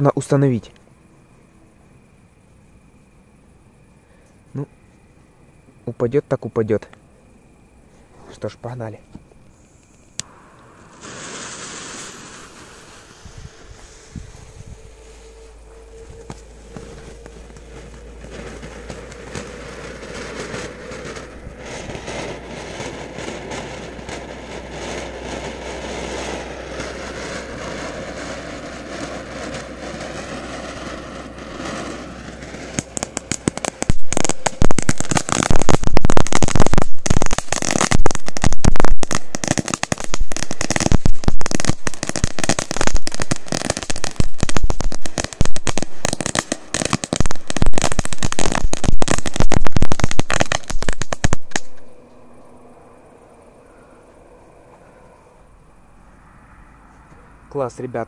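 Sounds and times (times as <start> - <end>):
firework fountain hissing: 9.3 - 51.9
loud dense crackling: 11.0 - 51.8.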